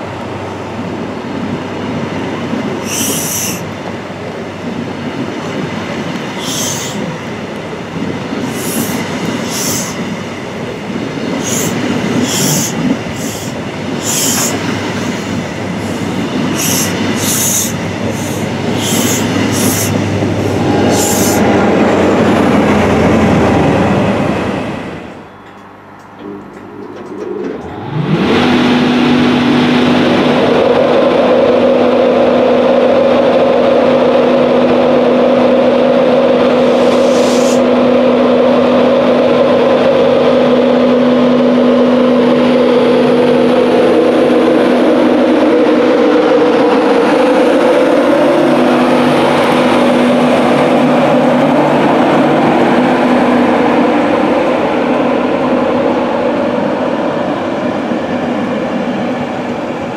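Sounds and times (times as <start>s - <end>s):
electric locomotive hum: 0.0s - 59.9s
rising electric whine: 19.8s - 24.9s.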